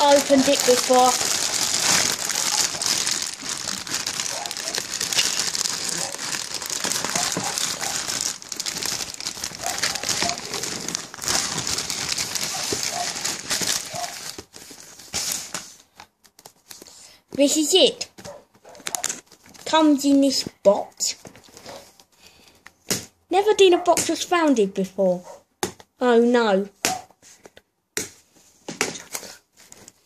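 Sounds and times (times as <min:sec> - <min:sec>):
plastic mailing bag crinkling: 0:00.0 - 0:16.9.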